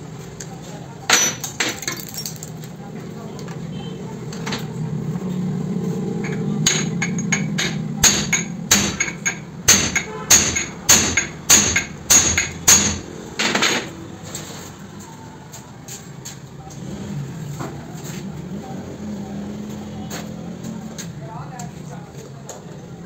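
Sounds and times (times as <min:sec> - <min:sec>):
hammer striking metal: 0:06.2 - 0:13.9.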